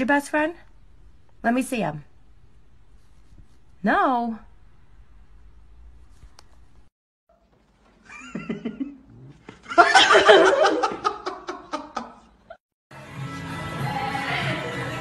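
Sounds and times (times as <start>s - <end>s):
person giggling: 8.0s - 12.6s
loud laughter in bursts: 9.7s - 12.3s.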